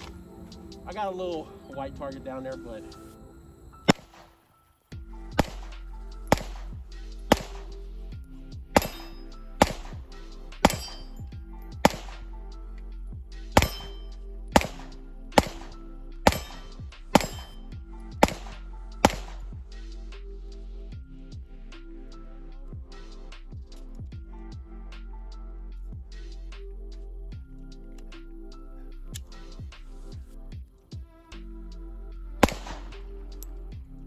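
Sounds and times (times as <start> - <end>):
background music: 0.0 - 34.0
pistol shots: 3.9 - 4.4, 5.3 - 7.7, 8.8 - 10.0, 10.6 - 11.2, 11.8 - 12.3, 13.6 - 14.0, 14.6 - 17.6, 18.2 - 19.5, 32.4 - 33.1.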